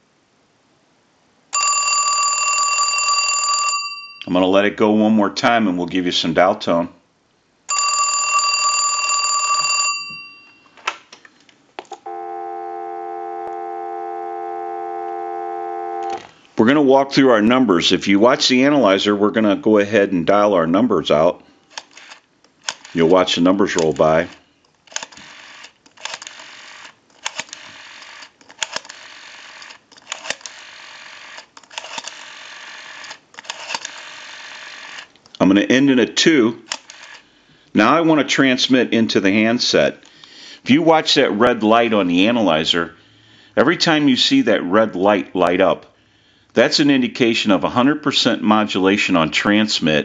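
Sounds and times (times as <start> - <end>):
telephone bell ringing: 1.6 - 4.3, 7.7 - 10.8, 12.0 - 16.2
steady dial tone: 12.0 - 16.3
rotary phone dial clicks: 21.7 - 35.4, 36.7 - 37.2.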